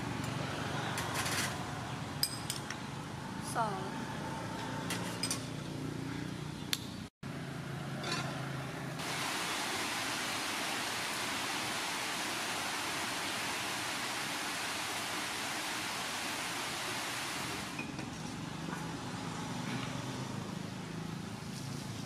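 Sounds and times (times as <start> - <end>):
rain on plants: 9.0 - 17.8.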